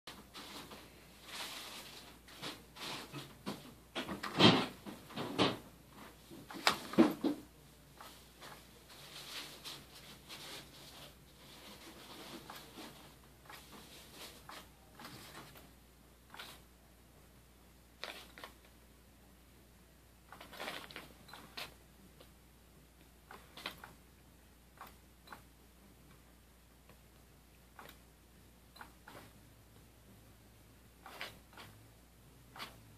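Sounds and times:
fabric rustling and scraping: 0.1s - 3.8s, 8.0s - 15.7s, 20.3s - 21.8s.

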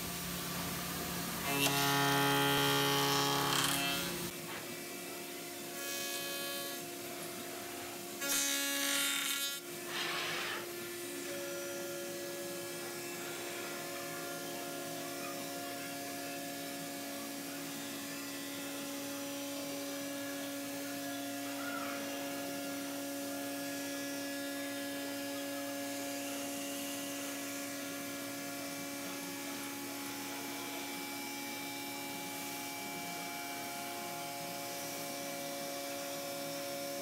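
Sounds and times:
router spindle humming: 1.4s - 4.3s.

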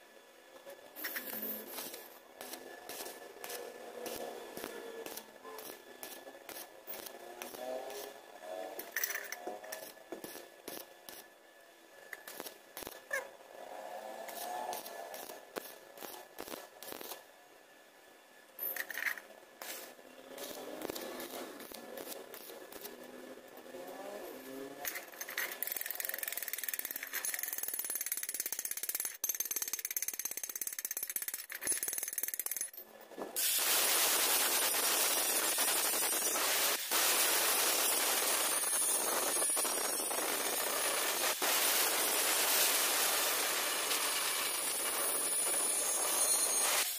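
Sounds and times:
wavering whine: 0.1s - 17.3s
angle grinder grinding metal: 1.0s - 10.9s, 37.5s - 46.9s
welding arc crackling: 1.0s - 11.3s, 12.1s - 13.2s, 14.2s - 17.3s, 19.6s - 24.1s, 33.4s - 46.9s
chipping hammer ticking and scraping: 1.7s - 8.1s, 14.2s - 17.2s, 20.3s - 23.1s, 24.8s - 32.8s.

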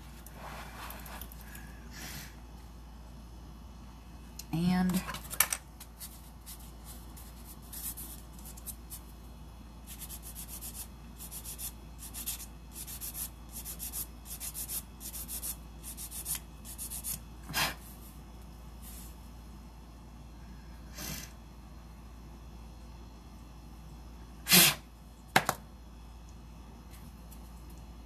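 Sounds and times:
nail file scratching nails: 9.8s - 17.2s.

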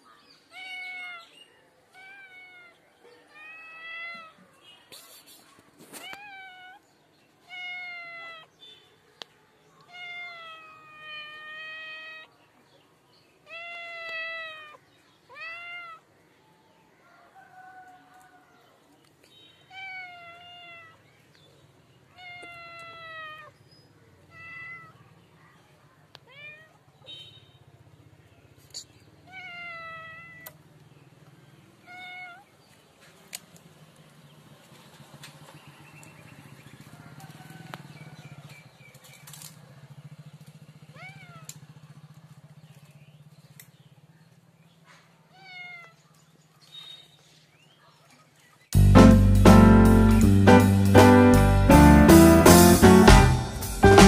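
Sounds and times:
cat meowing: 0.5s - 4.5s, 5.9s - 6.8s, 7.4s - 8.5s, 9.8s - 12.3s, 13.4s - 16.1s, 19.7s - 21.0s, 22.1s - 23.6s, 24.3s - 25.0s, 26.2s - 26.9s, 29.2s - 30.6s, 31.8s - 32.5s, 40.9s - 41.6s, 45.3s - 46.0s.

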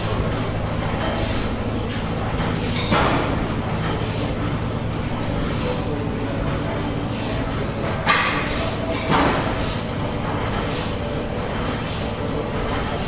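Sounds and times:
stationary engines rumbling: 0.0s - 13.0s.

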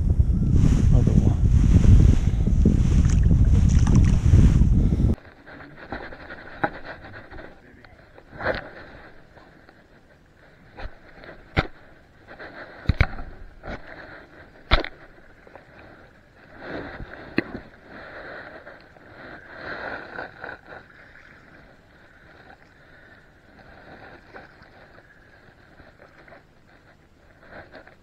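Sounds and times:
water swishing and lapping: 2.6s - 4.7s, 13.8s - 28.0s.

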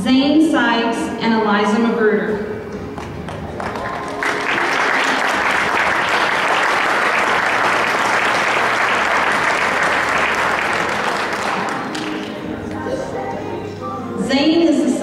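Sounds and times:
audience applauding: 3.0s - 12.5s.

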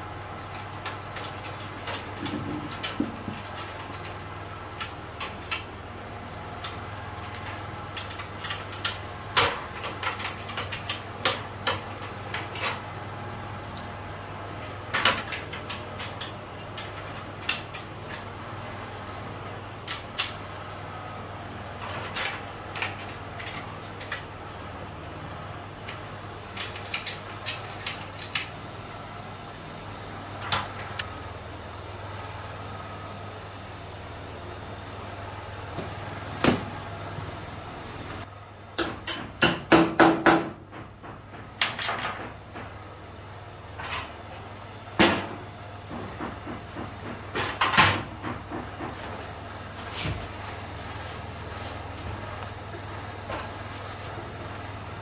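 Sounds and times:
hand tools knocking on steel: 38.8s - 42.7s.

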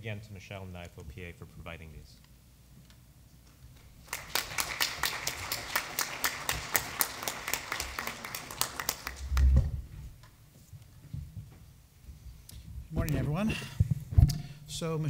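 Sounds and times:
applause: 4.0s - 9.6s
low thump: 9.3s - 10.1s.

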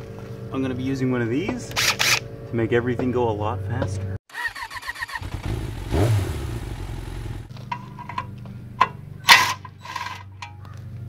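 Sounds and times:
hand tools clicking on gravel: 7.5s - 11.0s.

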